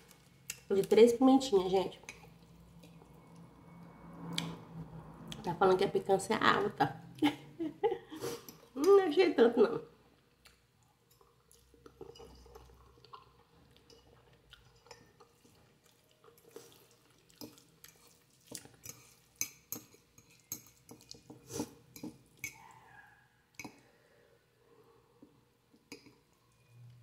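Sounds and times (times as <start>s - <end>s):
utensil clinking on dish: 12.0s - 12.7s
wet chewing clicks and smacks: 12.8s - 18.9s.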